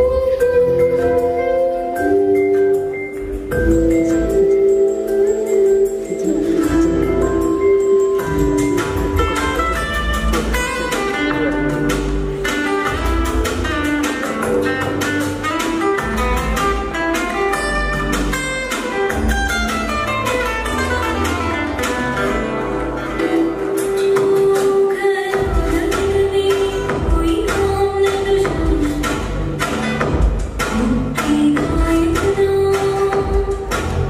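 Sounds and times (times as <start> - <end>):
dance music: 0.0 - 34.0.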